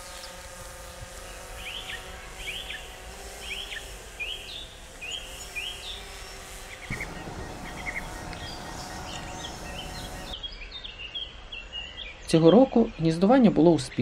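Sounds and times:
drone propellers humming: 0.1 - 10.4
songbird chirping: 3.5 - 14.0.

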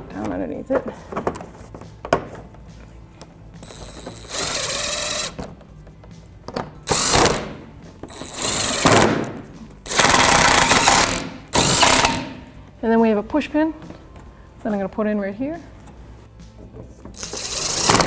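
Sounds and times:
cordless electric gun driving bolts: 3.6 - 5.5, 6.9 - 9.3, 9.9 - 12.4, 17.2 - 18.0.

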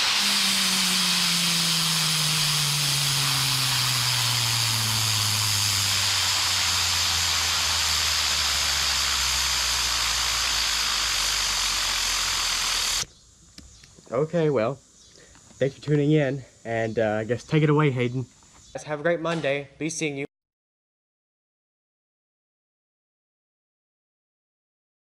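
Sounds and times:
compressed air hissing: 0.0 - 13.1
gyroscope rotor humming: 0.0 - 13.1.

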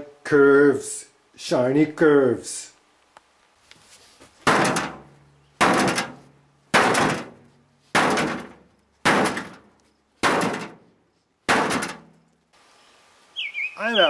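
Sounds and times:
heavy slamming impacts: 4.4 - 10.9, 11.5 - 12.2.

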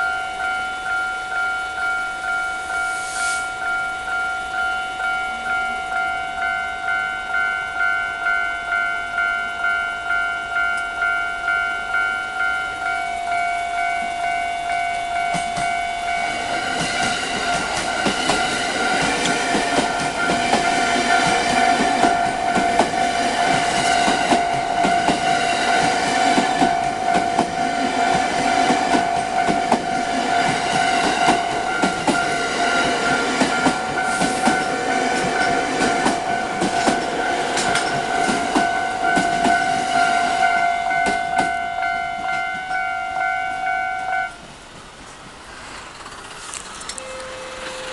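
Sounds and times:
level-crossing warning bell: 0.0 - 44.5, 46.9 - 47.9
train wheels clicking over rail joints: 14.7 - 42.8, 44.7 - 47.9.

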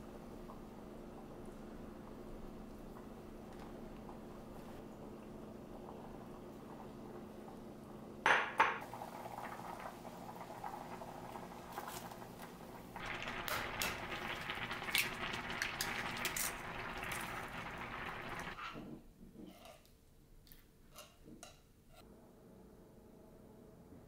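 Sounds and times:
soup boiling in a saucepan: 0.0 - 18.6.

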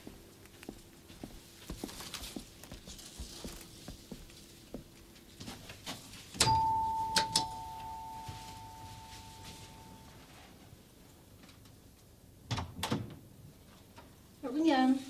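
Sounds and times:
two-tone doorbell chime: 6.4 - 10.2.

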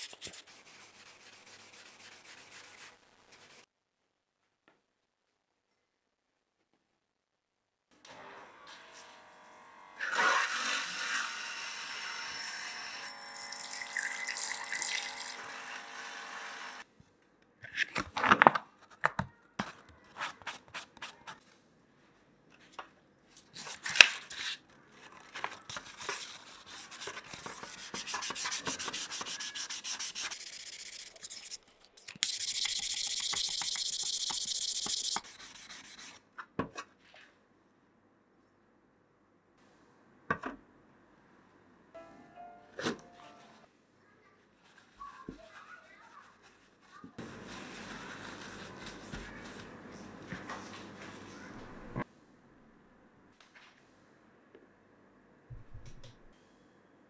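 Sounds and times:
sandpaper rubbing on brass: 0.0 - 3.7, 26.4 - 31.6, 32.2 - 36.2.

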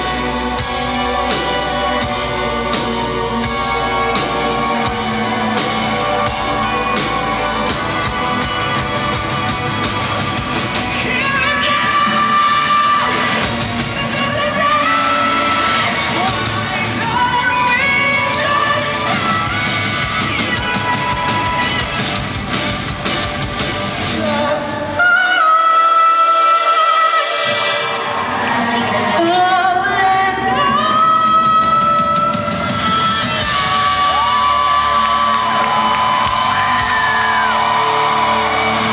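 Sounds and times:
bass guitar: 0.0 - 25.0, 28.1 - 38.9
rock band playing live: 0.0 - 25.6, 26.3 - 38.9
drums: 0.0 - 38.9
person singing: 24.0 - 35.8.

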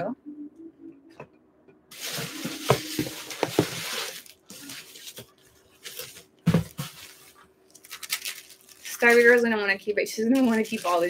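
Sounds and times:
bubble wrap crinkling: 1.9 - 11.0.

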